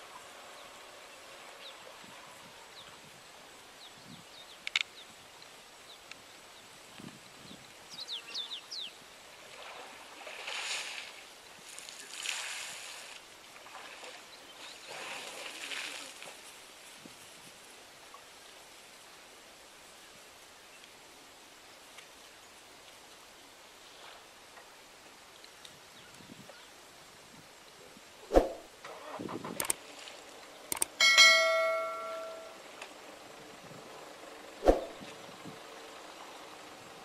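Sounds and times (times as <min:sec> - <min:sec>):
elephant splashing water: 0:09.2 - 0:16.8, 0:28.4 - 0:32.5
sharp click: 0:29.5 - 0:29.8, 0:30.7 - 0:31.0
bird chirps: 0:30.7 - 0:32.6.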